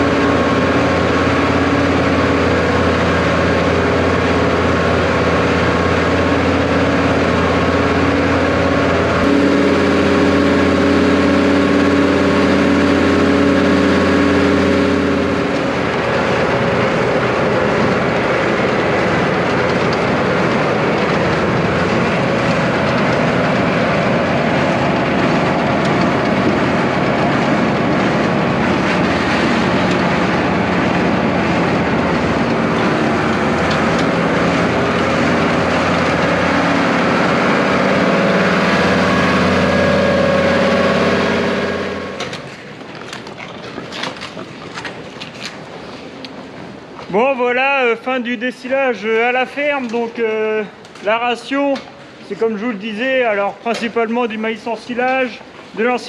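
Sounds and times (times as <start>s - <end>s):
silage distributor machine running: 0.0s - 43.3s
tractor engine drone: 0.0s - 56.0s.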